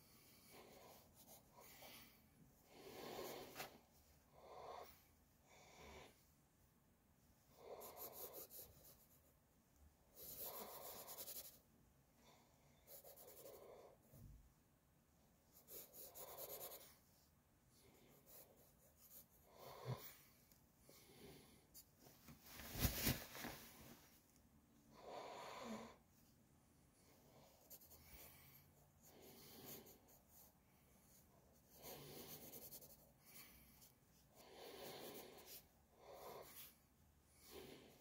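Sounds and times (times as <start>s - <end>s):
pencil scratching on paper: 0.5s - 2.0s, 7.7s - 9.4s, 10.1s - 11.6s, 12.8s - 13.9s, 15.5s - 17.0s, 17.9s - 20.0s, 27.4s - 34.0s, 34.7s - 36.8s.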